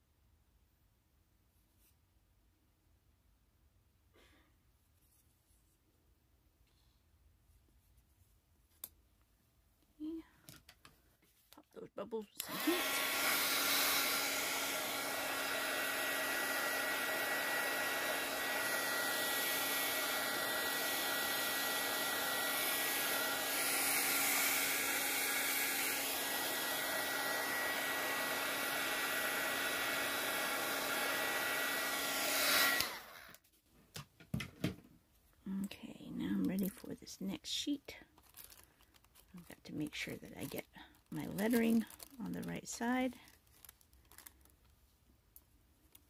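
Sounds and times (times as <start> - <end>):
heat gun blowing hiss: 12.4 - 33.4.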